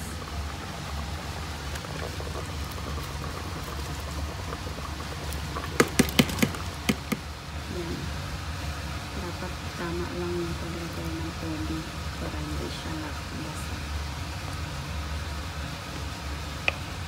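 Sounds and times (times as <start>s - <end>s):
rice pattering into pot: 1.6s - 7.4s.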